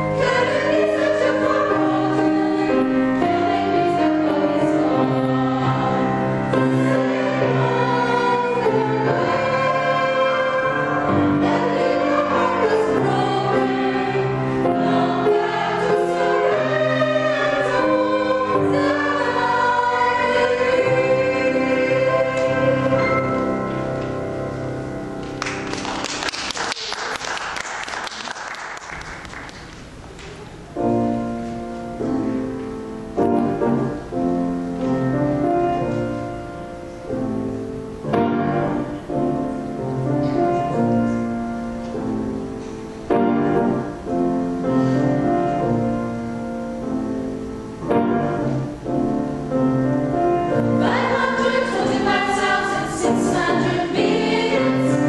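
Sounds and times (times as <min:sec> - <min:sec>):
vocal ensemble singing in harmony: 0:00.0 - 0:24.5, 0:49.4 - 0:55.0
applause: 0:25.2 - 0:30.4.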